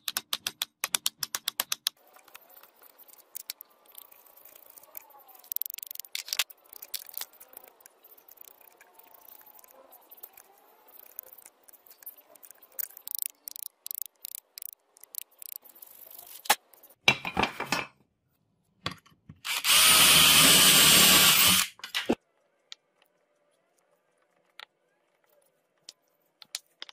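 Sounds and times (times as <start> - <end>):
electric drill boring wood: 19.5 - 21.8.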